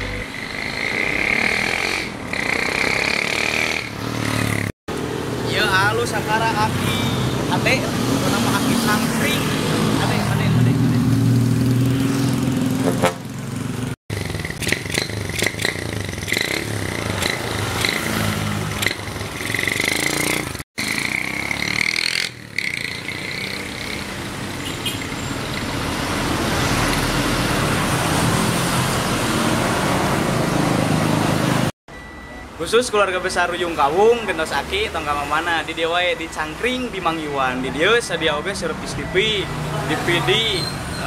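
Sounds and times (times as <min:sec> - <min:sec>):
street traffic passing: 0:00.0 - 0:41.0
motorcycle engine running: 0:11.3 - 0:24.3.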